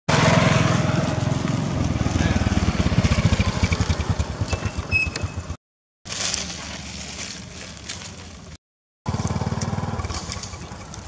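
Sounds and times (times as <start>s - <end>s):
small engine running: 0.1s - 5.6s, 9.1s - 11.0s
short high squeak: 4.5s - 5.5s.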